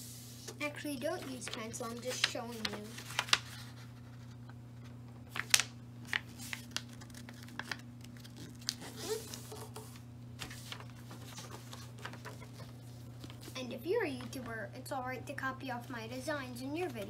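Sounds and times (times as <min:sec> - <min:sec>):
paper rustling and crackling: 0:00.4 - 0:14.5.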